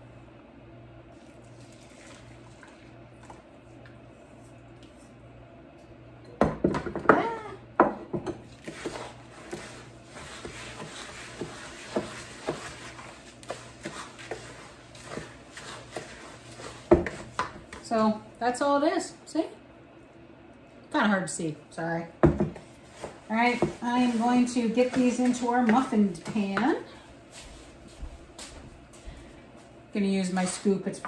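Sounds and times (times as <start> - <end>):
spatula scraping plastic bowl: 8.5 - 17.8.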